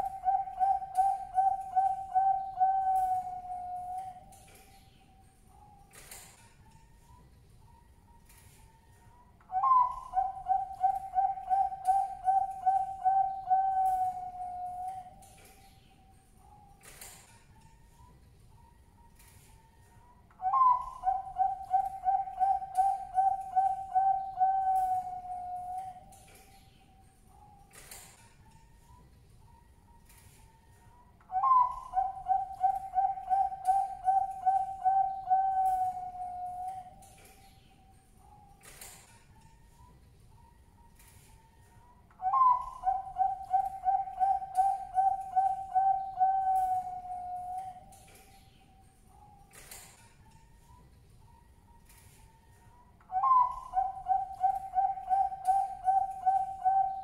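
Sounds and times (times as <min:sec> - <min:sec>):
dove cooing: 0:00.0 - 0:04.3, 0:09.5 - 0:15.2, 0:20.4 - 0:26.1, 0:31.3 - 0:37.0, 0:42.2 - 0:47.9, 0:53.1 - 0:57.0.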